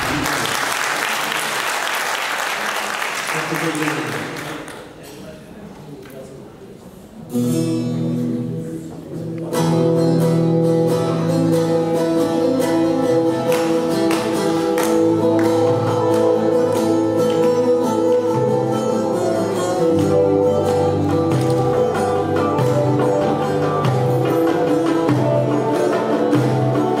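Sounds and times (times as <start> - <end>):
folk music ensemble: 6.8 - 27.0.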